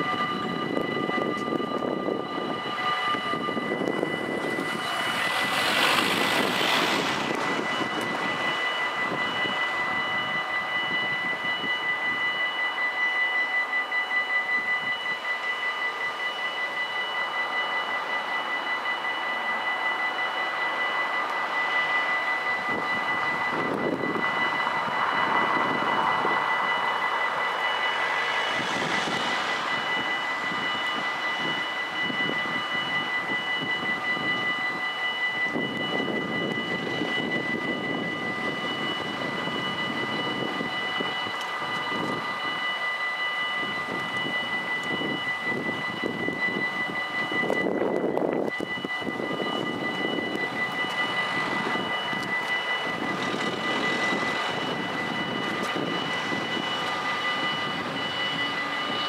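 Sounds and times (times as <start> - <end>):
level-crossing bells ringing: 0.0 - 59.0
passing vehicle rush: 4.0 - 9.5, 24.7 - 32.4.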